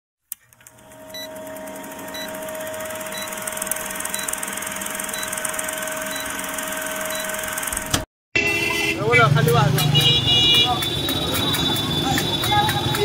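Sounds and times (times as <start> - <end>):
film projector clatter and whirr: 0.3 - 8.1.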